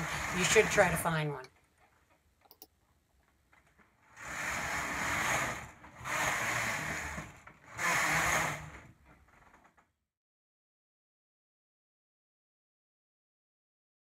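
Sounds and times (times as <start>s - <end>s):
knitting machine sweeping needle bed: 0.0s - 1.2s, 4.0s - 9.4s.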